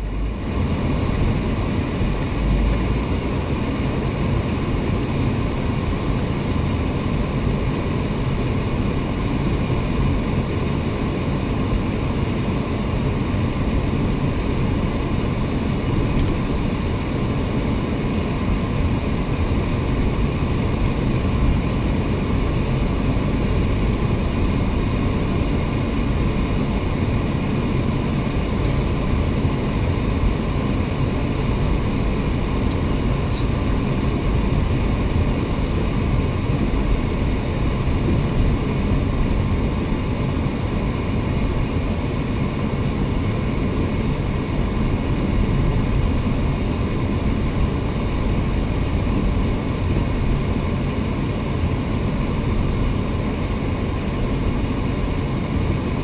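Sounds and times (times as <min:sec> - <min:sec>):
car engine and road noise: 0:00.0 - 0:56.0.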